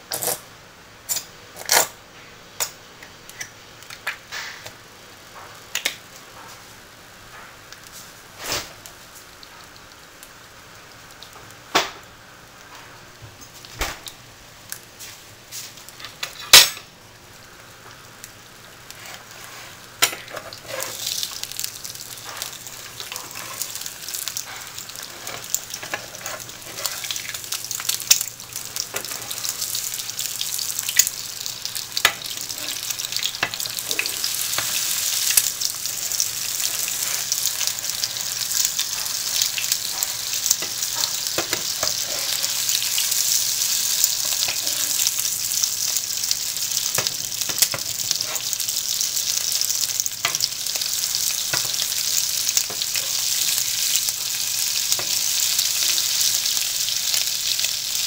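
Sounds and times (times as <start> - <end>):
eggs sizzling in a frying pan: 2.5 - 58.0
metal spatula scraping a pan: 19.0 - 21.1, 22.3 - 23.9, 24.5 - 27.2.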